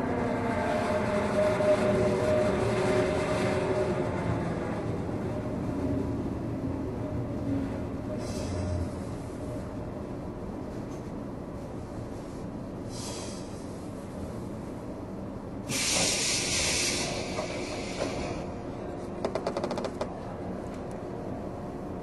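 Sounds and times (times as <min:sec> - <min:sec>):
train car low hum: 0:00.0 - 0:22.0
compressed air hissing: 0:15.7 - 0:18.4.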